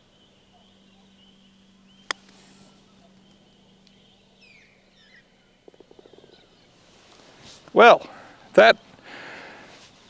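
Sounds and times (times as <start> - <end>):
faint bird chirps: 0.0 - 6.9
faint steady hum: 0.0 - 10.0.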